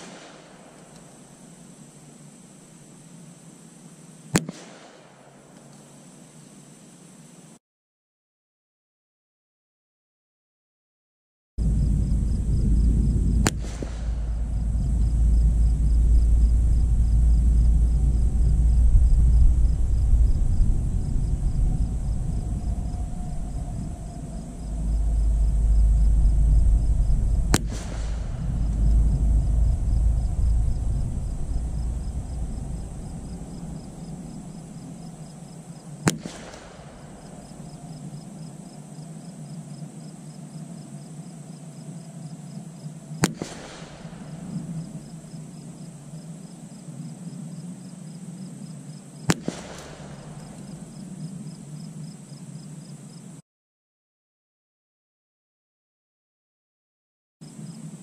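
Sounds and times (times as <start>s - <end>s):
rifle shots with echo: 0.0s - 1.5s, 4.3s - 5.8s, 13.4s - 16.1s, 27.5s - 29.3s, 31.5s - 37.8s, 43.2s - 44.8s, 49.3s - 51.2s.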